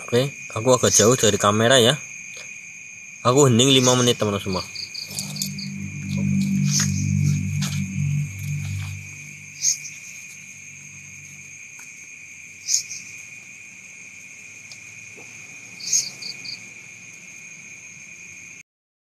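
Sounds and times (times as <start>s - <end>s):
crickets and insects trilling: 0.0s - 18.6s
short high chirp: 5.1s - 9.9s.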